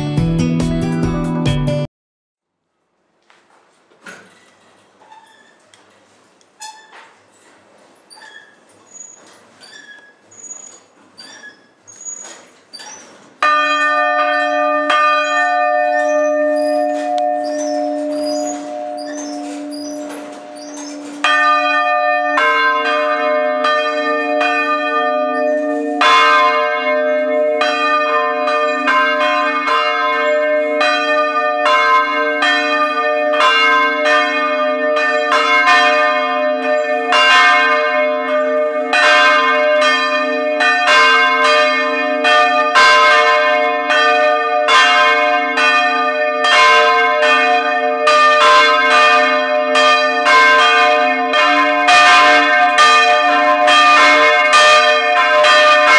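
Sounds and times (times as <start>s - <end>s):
church bells ringing: 13.4s - 55.9s.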